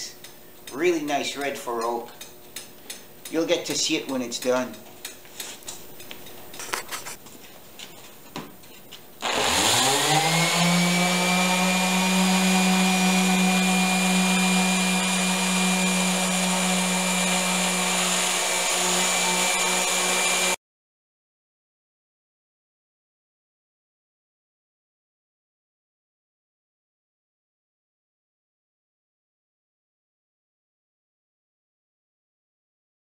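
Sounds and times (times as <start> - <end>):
electric sander whining: 9.2 - 20.6.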